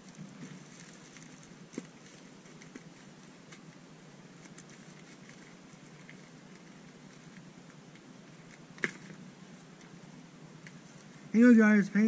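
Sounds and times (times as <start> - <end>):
hands crinkling a package: 0.0 - 3.8.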